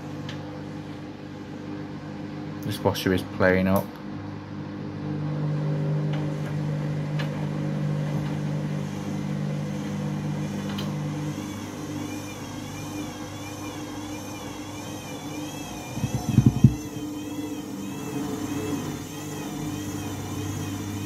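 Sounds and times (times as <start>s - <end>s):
washing machine motor hum: 0.0s - 21.0s
wavering high whine: 6.2s - 21.0s.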